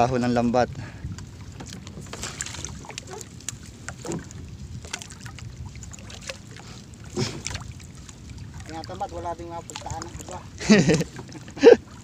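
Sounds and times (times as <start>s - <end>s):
water dripping and splashing off net: 2.1s - 6.4s.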